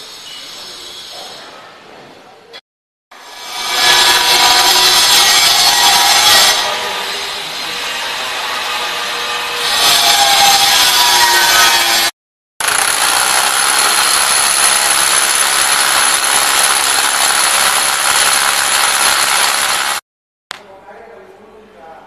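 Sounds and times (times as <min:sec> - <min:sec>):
harsh grinding noise: 0:03.2 - 0:20.0
rotary hammer drilling into concrete: 0:12.6 - 0:20.0.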